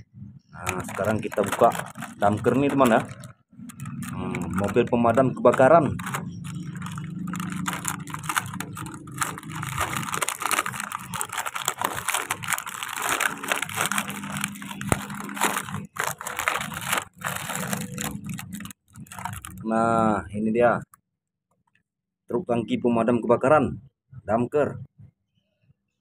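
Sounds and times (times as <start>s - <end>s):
plastic packaging crinkling: 0.6s - 19.6s.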